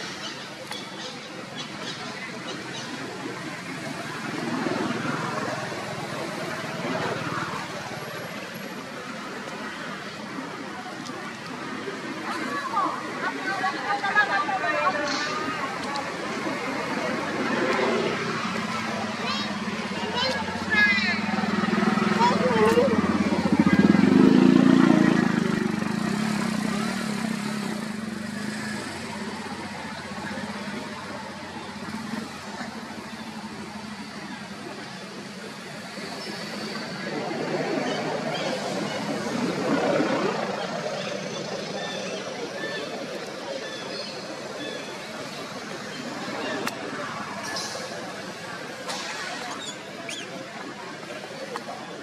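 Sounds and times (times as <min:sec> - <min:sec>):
faint murmur of voices: 0:00.0 - 0:52.0
motor vehicle engine running: 0:16.0 - 0:52.0.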